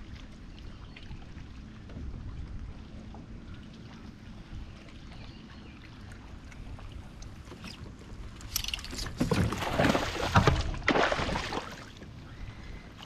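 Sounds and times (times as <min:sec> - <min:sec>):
fish splashing at water surface: 0:09.4 - 0:11.9.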